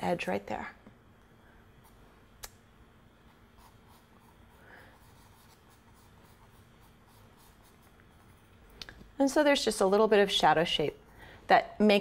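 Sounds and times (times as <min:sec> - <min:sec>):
pencil scratching on paper: 0:03.3 - 0:08.6.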